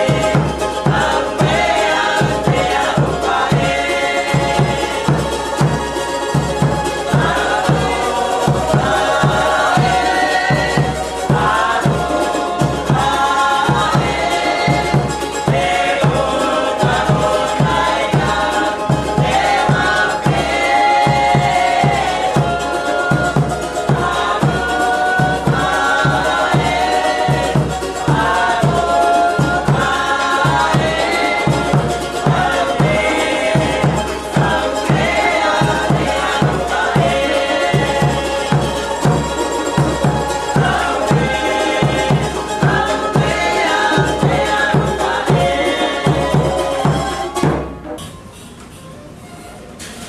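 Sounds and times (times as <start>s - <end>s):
steady drum beat: 0.0s - 47.9s
group singing together: 0.0s - 48.0s.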